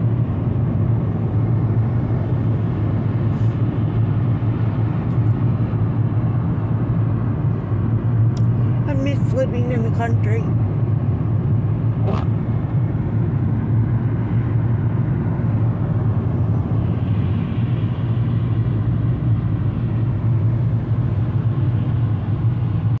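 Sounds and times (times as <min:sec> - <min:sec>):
tyres on wet road: 0:08.4 - 0:23.0.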